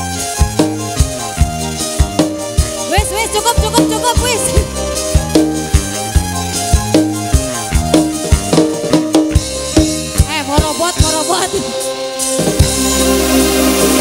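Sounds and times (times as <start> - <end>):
guitar and keyboard tones: 0.0 - 14.0
drum strokes: 0.4 - 14.0
wavering melody line: 2.8 - 14.0.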